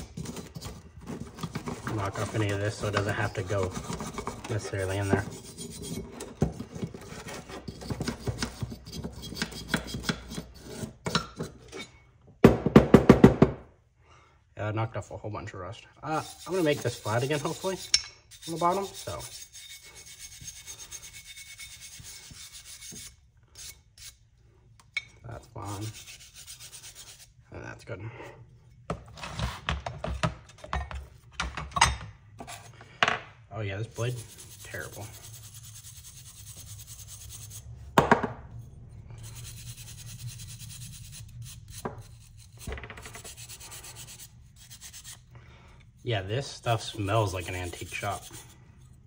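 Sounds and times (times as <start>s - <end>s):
scratchy rubbing on wooden plane: 0.0s - 11.0s, 16.1s - 24.2s, 25.5s - 27.4s, 33.9s - 37.6s, 39.2s - 45.3s, 46.4s - 48.6s
scrubbing rust off metal blade: 1.9s - 11.9s, 16.1s - 24.2s, 39.1s - 45.3s, 46.4s - 49.0s.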